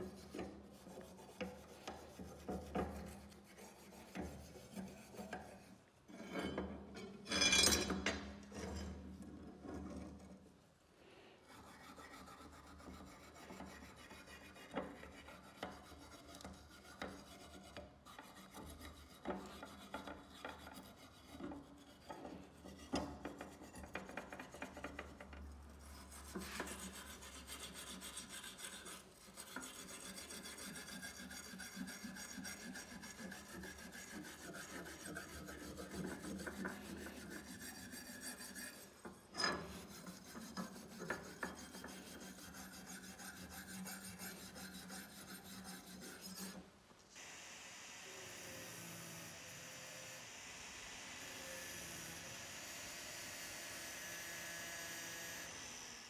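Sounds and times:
wire brush scraping rusty steel: 11.4s - 24.8s, 25.4s - 46.7s.

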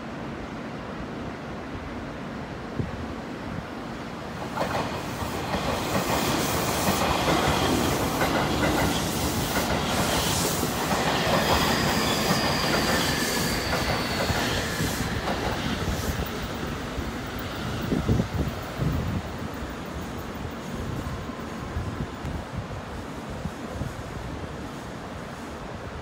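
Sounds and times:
train rolling past: 0.0s - 26.0s
wheels clacking on rails: 4.3s - 21.4s
faint high wheel squeal: 11.3s - 15.2s.

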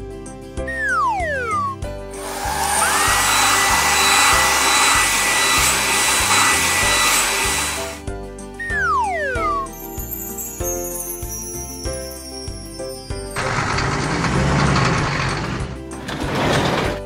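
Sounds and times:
background music with steady beat: 0.0s - 13.4s
blower rushing air with whine: 2.1s - 8.0s
falling whistle-like glide: 2.4s - 5.8s, 8.6s - 9.8s.

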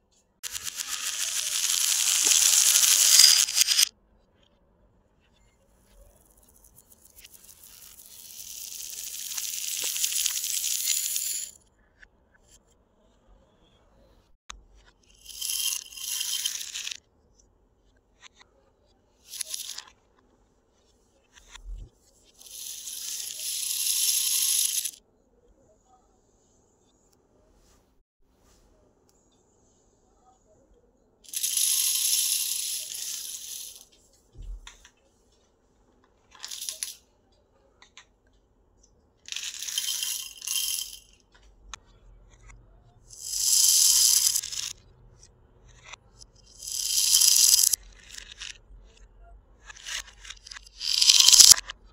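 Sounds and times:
beads clattering in bowls: 0.4s - 3.9s, 6.4s - 11.6s, 15.2s - 17.0s, 19.3s - 19.8s, 22.4s - 25.0s, 31.3s - 33.9s, 36.3s - 37.0s, 39.3s - 41.2s, 43.1s - 44.8s, 46.2s - 48.5s, 49.9s - 51.6s.

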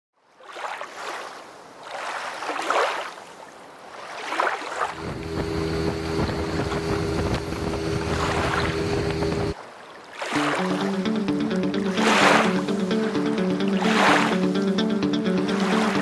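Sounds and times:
water noise: 0.4s - 16.0s
outboard motor running: 4.9s - 9.6s
wind gusting against microphone: 5.0s - 9.6s.

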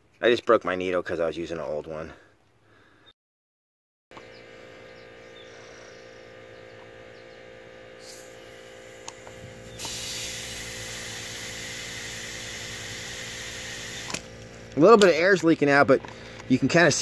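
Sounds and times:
air compressor humming: 4.1s - 17.0s
air hissing into bottle: 8.0s - 14.2s.

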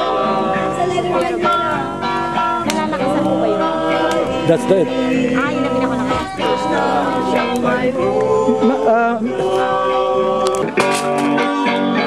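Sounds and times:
group singing loudly: 0.0s - 12.0s
guitar playing: 0.0s - 12.0s.

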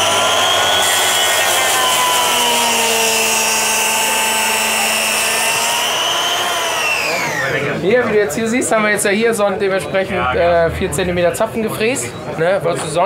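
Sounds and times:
cutter biting wood: 0.0s - 7.5s
milling machine motor whine: 0.0s - 7.6s.

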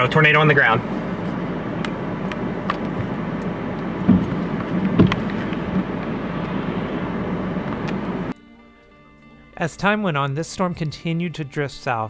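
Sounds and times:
car running with low hum: 0.0s - 8.4s
dull thumps: 3.8s - 6.2s.

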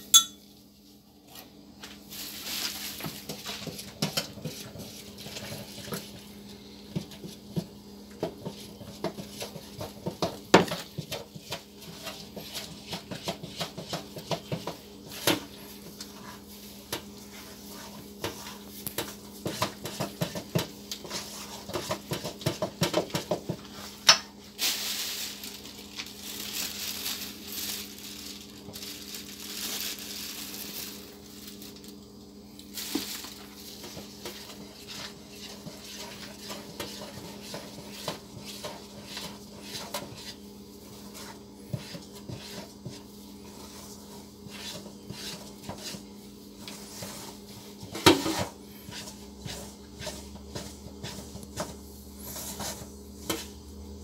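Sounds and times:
metal bowl clinking: 0.0s - 0.5s
low steady hum: 0.0s - 2.9s
hands rustling in flour: 1.7s - 54.0s.

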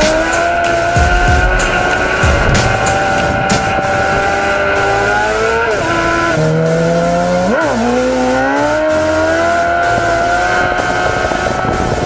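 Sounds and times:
wind rushing over microphone: 0.0s - 6.8s, 9.6s - 12.0s
motorcycle engine accelerating: 0.0s - 12.0s.

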